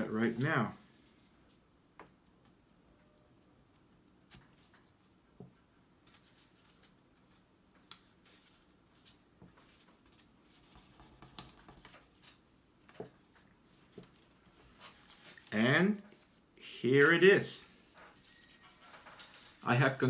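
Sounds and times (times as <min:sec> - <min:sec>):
paper rustling and rubbing: 0:06.1 - 0:12.4, 0:14.1 - 0:16.6, 0:17.6 - 0:20.0.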